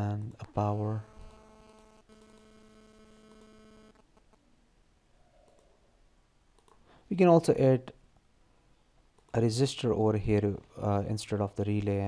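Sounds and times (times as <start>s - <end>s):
faint electrical hum: 0.0s - 12.0s
click: 5.4s - 5.7s, 6.5s - 6.8s.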